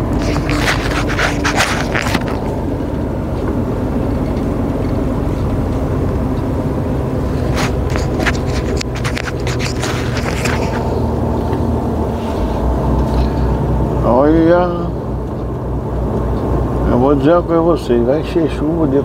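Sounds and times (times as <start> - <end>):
sharp clicks and rattles: 0.0 - 11.9
truck engine and road drone: 0.0 - 19.0.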